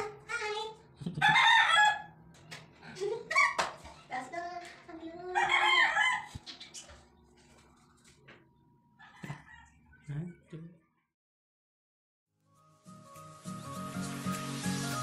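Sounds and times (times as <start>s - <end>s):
rooster crowing: 1.2s - 2.2s, 5.3s - 6.4s, 9.0s - 9.8s.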